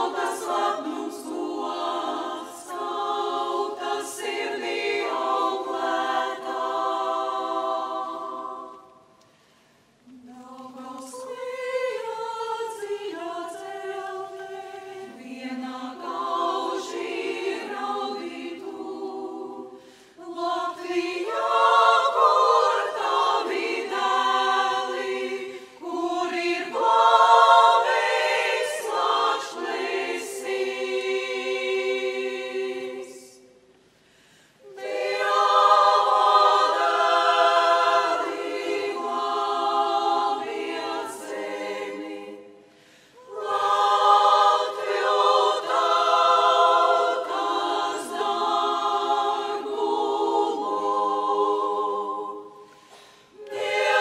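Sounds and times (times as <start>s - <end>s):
women's choir singing: 0.0s - 9.2s, 10.0s - 33.8s, 34.6s - 54.0s.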